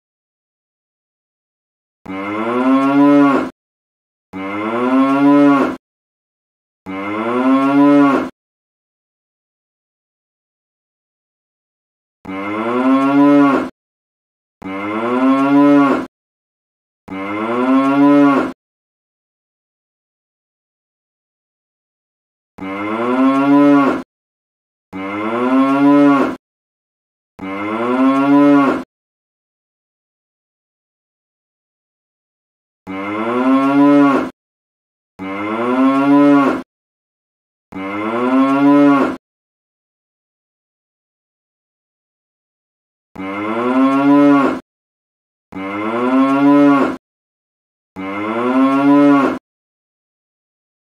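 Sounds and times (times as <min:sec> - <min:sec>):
cow mooing: 0:02.1 - 0:03.5, 0:04.4 - 0:05.8, 0:06.9 - 0:08.3, 0:12.3 - 0:13.7, 0:14.6 - 0:16.1, 0:17.1 - 0:18.6, 0:22.6 - 0:24.0, 0:25.0 - 0:26.4, 0:27.4 - 0:28.9, 0:32.9 - 0:34.2, 0:35.2 - 0:36.7, 0:37.7 - 0:39.2, 0:43.2 - 0:44.6, 0:45.5 - 0:47.0, 0:48.0 - 0:49.4.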